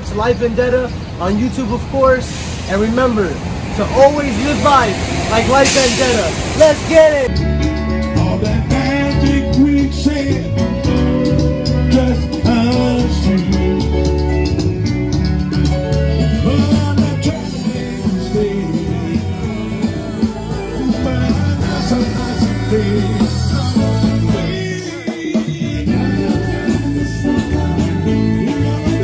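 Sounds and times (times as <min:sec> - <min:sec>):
steady drum beat: 0:04.2 - 0:29.0
guitars: 0:05.4 - 0:29.0
person singing: 0:07.9 - 0:14.6, 0:15.8 - 0:29.0.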